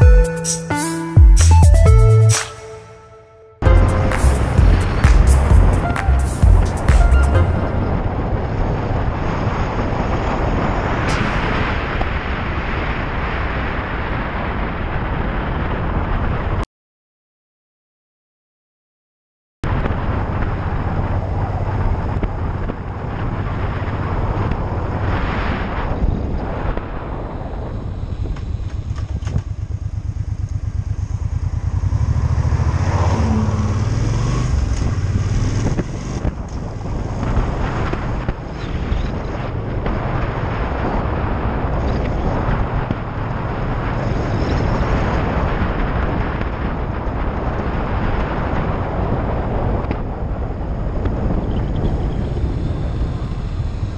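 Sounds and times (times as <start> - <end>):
motorcycle engine running: 3.6 - 7.9, 27.8 - 39.0, 50.8 - 53.9
wind noise on microphone: 3.6 - 16.6, 19.6 - 53.9.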